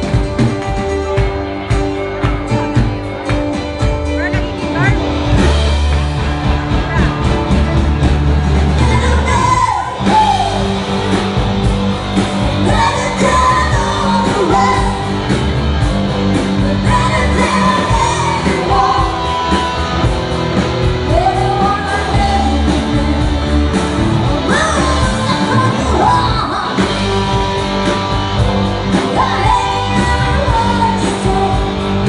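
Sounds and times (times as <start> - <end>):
live rock band playing: 0.0 - 32.0
woman singing into microphone: 8.8 - 10.6, 12.6 - 15.1, 16.6 - 19.4, 21.1 - 23.4, 24.4 - 27.0, 29.0 - 32.0.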